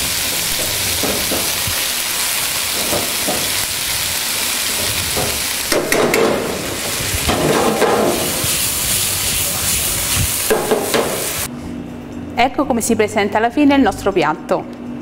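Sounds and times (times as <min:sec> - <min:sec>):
pasta sizzling in a frying pan: 0:00.0 - 0:11.5
tongs knocking on pan: 0:02.8 - 0:03.6, 0:05.2 - 0:06.5, 0:10.5 - 0:11.2
pan clattering on burner: 0:04.8 - 0:08.5, 0:10.5 - 0:11.4.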